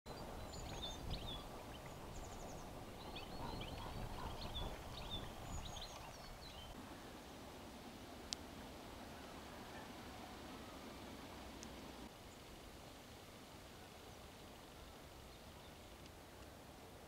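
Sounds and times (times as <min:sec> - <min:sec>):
birds chirping and trilling: 0:00.1 - 0:06.8
wind rumble on microphone: 0:00.1 - 0:06.8.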